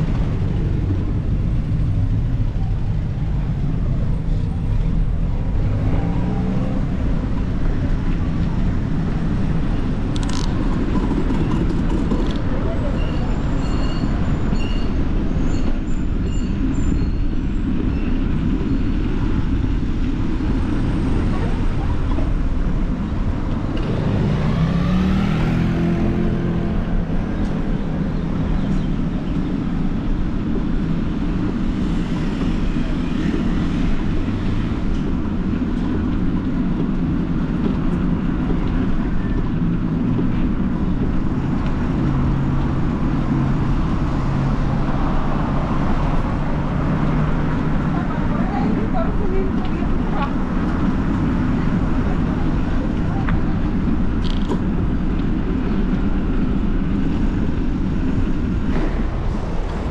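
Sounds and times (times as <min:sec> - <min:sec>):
road rumble: 0:00.0 - 0:59.9
wind rushing over microphone: 0:00.0 - 0:59.9
vehicle engine passing by: 0:23.6 - 0:29.2.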